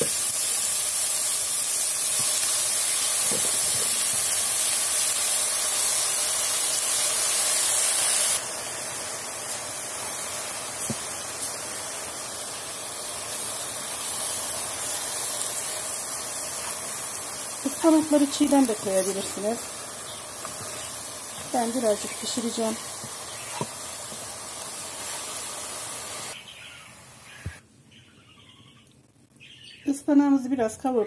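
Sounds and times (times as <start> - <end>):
spinach sizzling in hot oil: 0.0 - 27.6.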